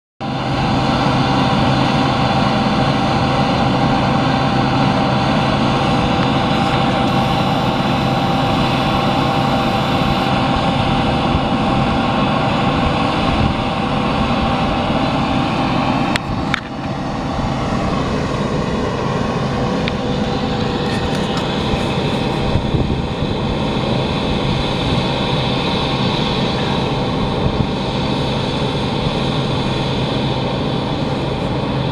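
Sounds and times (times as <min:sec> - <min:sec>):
tractors running under load: 0:00.2 - 0:31.9
turf mowing machine drone: 0:00.2 - 0:31.9.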